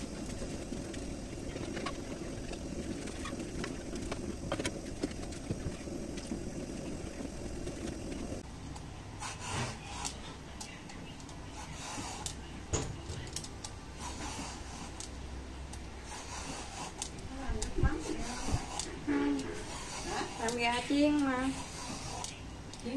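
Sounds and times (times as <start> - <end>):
gas flame rushing: 0.0 - 8.5, 9.2 - 10.2, 13.9 - 15.2, 15.9 - 22.5
butter frying with small pops: 0.0 - 8.8.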